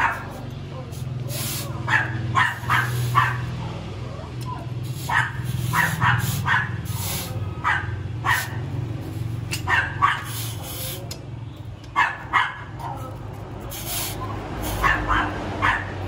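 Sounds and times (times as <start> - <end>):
dog barking: 0.0 - 0.5, 1.4 - 4.0, 4.8 - 8.7, 9.6 - 10.7, 11.9 - 13.2, 14.2 - 16.0.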